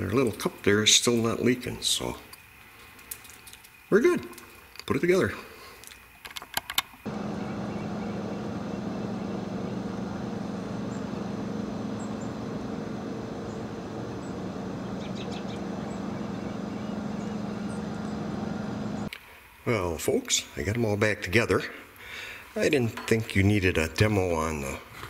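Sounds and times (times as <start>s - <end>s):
constant hiss: 0.0s - 25.0s
high bird chirps: 7.1s - 9.9s, 10.8s - 19.1s
low mechanical hum: 7.1s - 19.1s.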